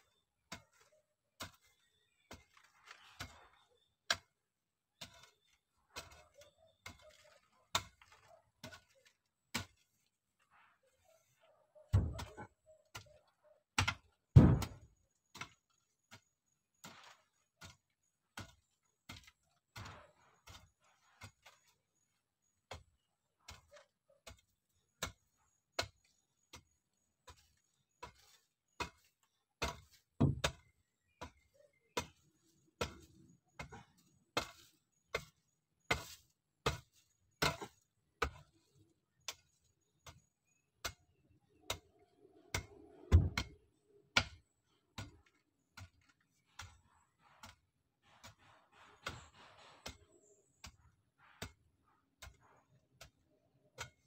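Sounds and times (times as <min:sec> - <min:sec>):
digging tool striking soil: 0:05.0 - 0:10.2, 0:13.8 - 0:51.6.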